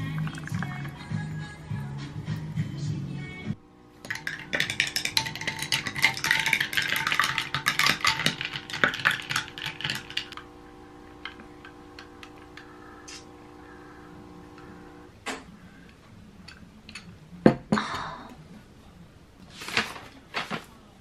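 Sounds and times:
faint background music: 0.0s - 3.8s
metal straw clinking against glass: 4.0s - 10.4s.

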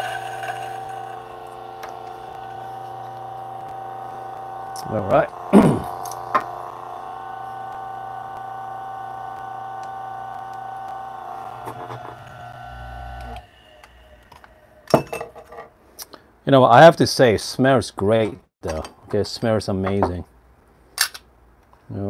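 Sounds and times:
coffee grinder whine: 0.0s - 15.0s.

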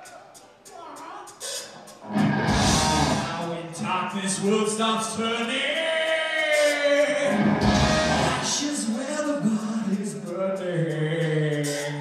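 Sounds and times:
heavy metal band playing: 1.9s - 5.4s, 6.4s - 10.0s.

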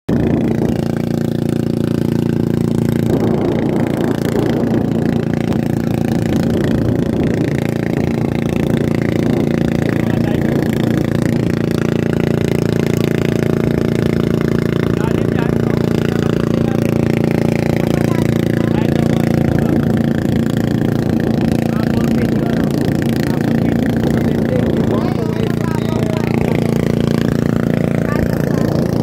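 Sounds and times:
boat engine droning: 0.1s - 29.0s.

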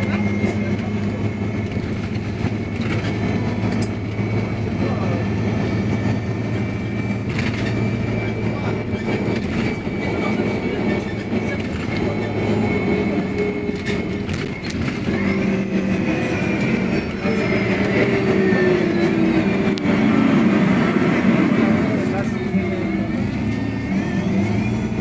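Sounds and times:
bus engine hum: 0.0s - 25.0s
road rumble: 0.0s - 25.0s.

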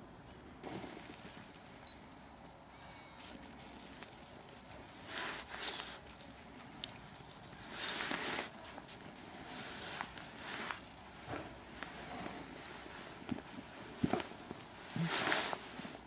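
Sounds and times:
small clicks: 6.8s - 7.8s.

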